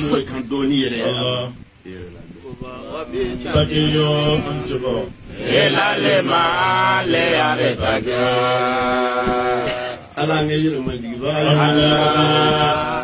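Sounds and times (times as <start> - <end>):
man chanting: 0.0 - 5.3, 9.6 - 13.0.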